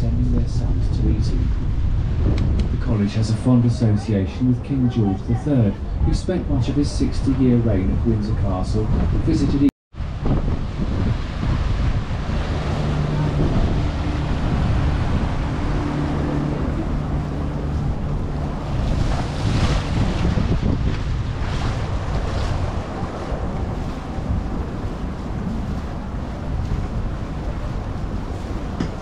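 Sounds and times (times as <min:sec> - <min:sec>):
water rushing: 0:00.0 - 0:29.0
wind buffeting microphone: 0:00.0 - 0:29.0
boat engine running: 0:10.1 - 0:29.0.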